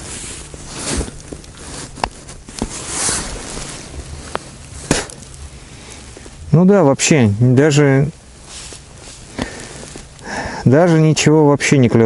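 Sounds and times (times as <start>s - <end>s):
clothing rustle: 0.0s - 6.4s, 8.3s - 10.2s.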